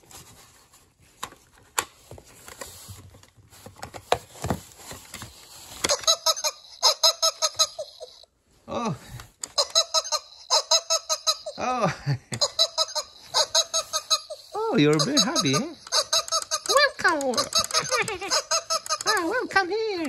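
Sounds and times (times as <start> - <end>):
toy mechanism clicks: 9.4 - 11.6, 12.3 - 20.0.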